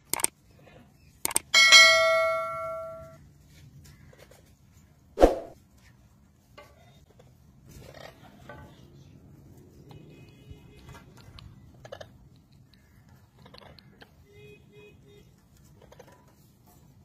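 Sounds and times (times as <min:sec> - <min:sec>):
bell-like notification chime: 0:01.6 - 0:03.2.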